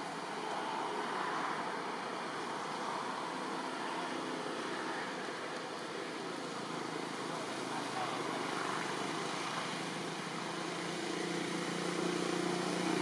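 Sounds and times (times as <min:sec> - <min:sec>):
engine noise: 0:03.0 - 0:13.0.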